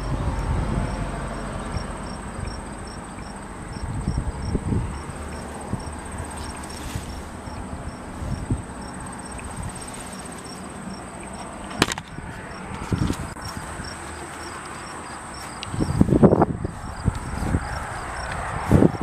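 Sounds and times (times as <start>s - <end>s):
crickets chirping: 0.0s - 19.0s
footsteps in grass: 5.4s - 8.5s, 11.4s - 19.0s
handling bumps: 11.4s - 13.7s.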